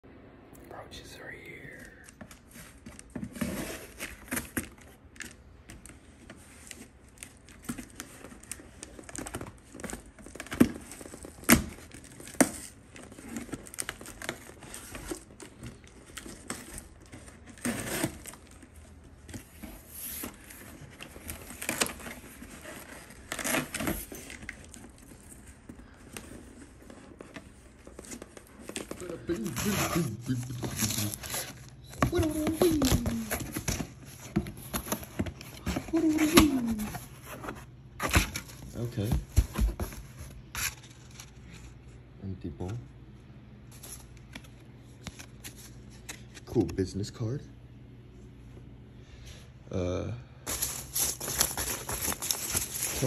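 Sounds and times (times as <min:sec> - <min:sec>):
cardboard box tearing: 0:16.1 - 0:18.6, 0:19.7 - 0:25.0, 0:27.9 - 0:37.1, 0:50.5 - 0:53.0.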